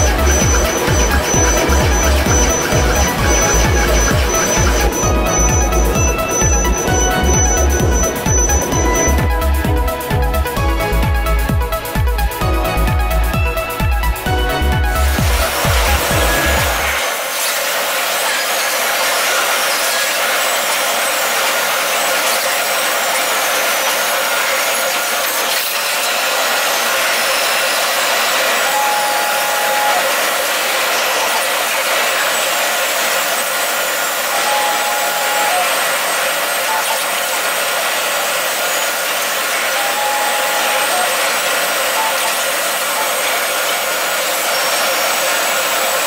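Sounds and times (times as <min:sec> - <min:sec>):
short tone: 0:00.0 - 0:12.0, 0:34.3 - 0:37.7, 0:39.6 - 0:43.8
machine milling metal: 0:00.0 - 0:46.0
thin machine whines: 0:00.0 - 0:46.0.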